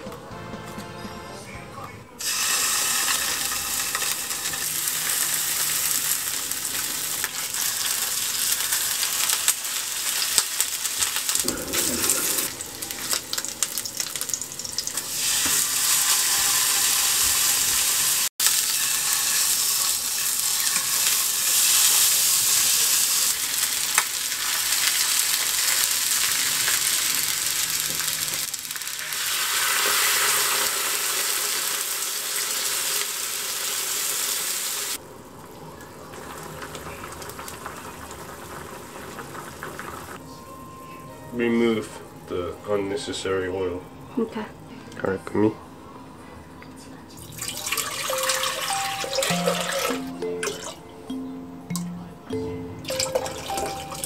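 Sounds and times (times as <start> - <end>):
meat sizzling in a frying pan: 2.2 - 40.2
water hissing in hot pan: 2.2 - 40.2.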